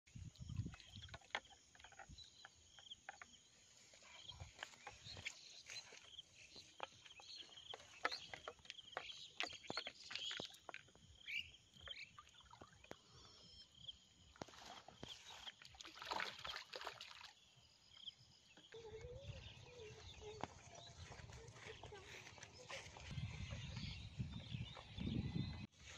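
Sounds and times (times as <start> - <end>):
water splashing and sloshing: 0.1 - 2.8, 3.7 - 13.3, 14.1 - 17.7
birds chirping: 0.2 - 15.7, 16.4 - 25.9.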